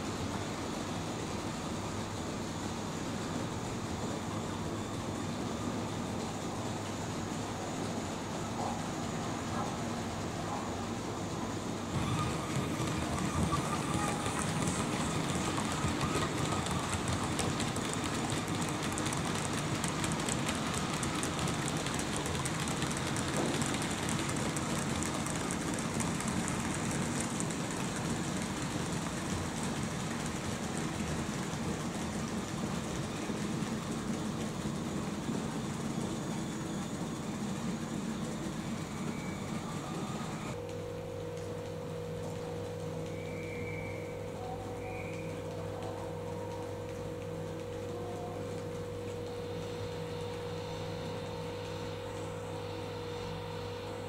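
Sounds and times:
model train wheels rolling: 0:03.2 - 0:40.6.

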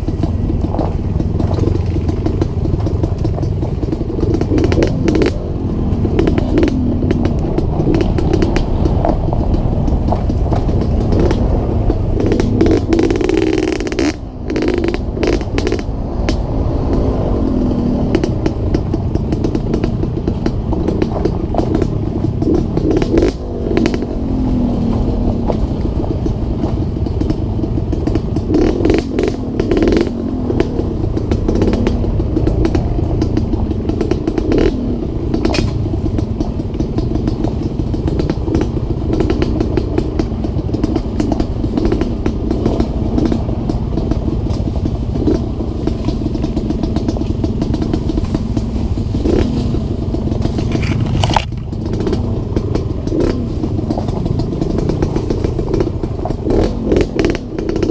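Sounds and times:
bike clattering over bumps: 0:00.0 - 0:57.9
dirt bike engine running: 0:00.0 - 0:57.9.

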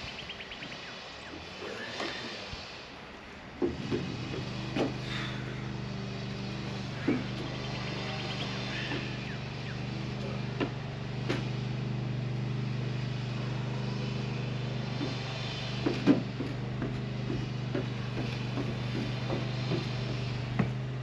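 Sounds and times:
low machine drone: 0:00.0 - 0:21.0
footsteps on wooden steps: 0:15.0 - 0:21.0
knocks on wooden staircase: 0:15.8 - 0:20.8.

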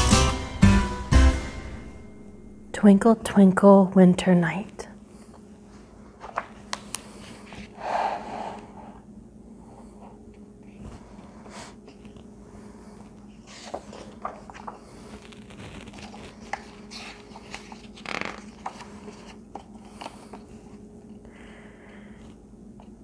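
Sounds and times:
steady low hum: 0:00.0 - 0:23.0
book page turning: 0:06.2 - 0:07.7, 0:13.1 - 0:20.5.

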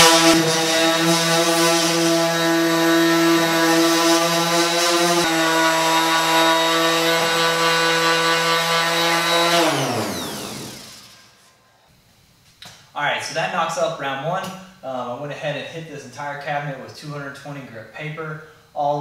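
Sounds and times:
orbital sander whining: 0:00.0 - 0:11.4
sander scuffing metal: 0:00.0 - 0:11.6.

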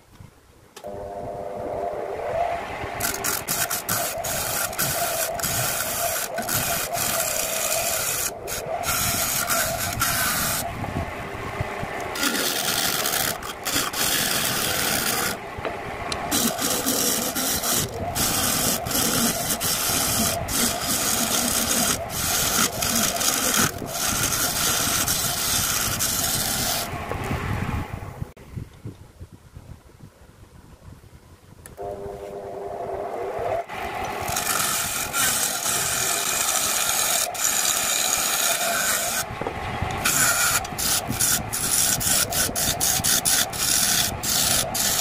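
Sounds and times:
lathe humming: 0:00.8 - 0:27.2, 0:31.8 - 0:45.0
scraping tool rasping on wood: 0:03.0 - 0:10.6, 0:12.1 - 0:15.4, 0:16.3 - 0:26.9, 0:34.2 - 0:39.3, 0:40.0 - 0:45.0.

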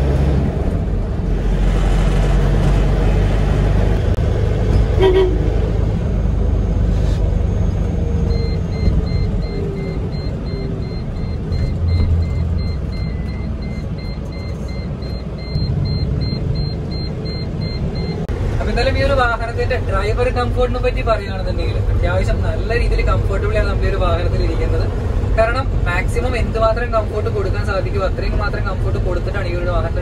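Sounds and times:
diesel engine and road noise: 0:00.0 - 0:30.0
horn toot: 0:04.9 - 0:05.5
repeating electronic beep: 0:08.3 - 0:18.2.

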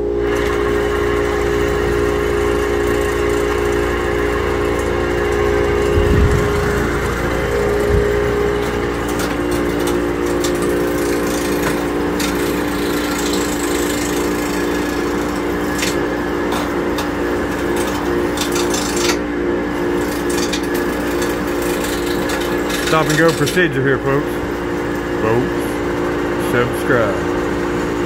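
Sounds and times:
wood lathe motor hum: 0:00.0 - 0:28.0
tool scraping and knocking wood: 0:04.8 - 0:19.2, 0:20.0 - 0:23.8.

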